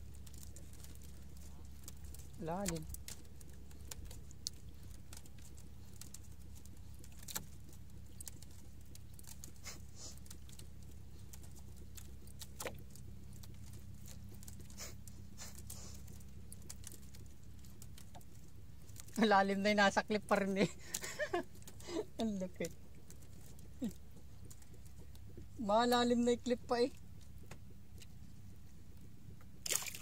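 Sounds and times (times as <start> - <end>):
steady low hum: 0.0 - 30.0
water lapping against boat hull: 20.7 - 30.0.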